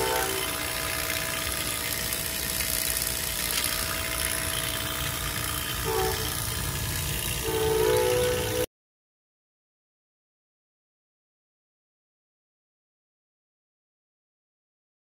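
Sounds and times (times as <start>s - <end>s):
louder horn-like tone: 0.0s - 0.7s, 5.8s - 6.5s, 7.4s - 8.7s
vacuum pump running: 0.0s - 8.7s.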